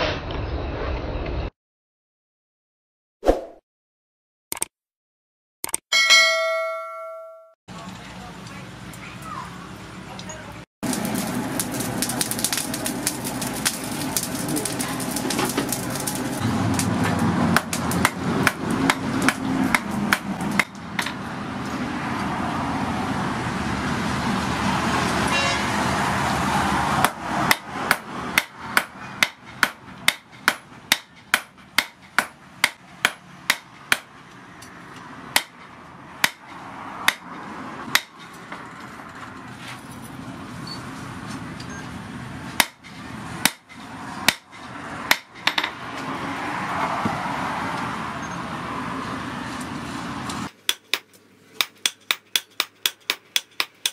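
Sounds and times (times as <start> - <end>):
hammer striking metal on anvil: 5.9 - 7.6, 27.0 - 34.1, 42.6 - 45.8, 50.7 - 53.9
forced air rushing through fire: 10.8 - 20.5.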